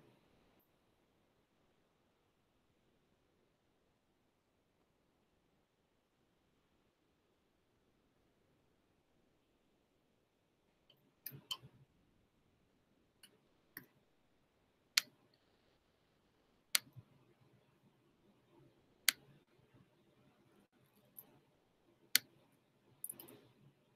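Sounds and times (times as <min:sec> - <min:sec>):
faint room noise: 0:00.0 - 0:23.9
computer mouse clicking: 0:16.7 - 0:17.0, 0:19.0 - 0:19.4, 0:23.0 - 0:23.5.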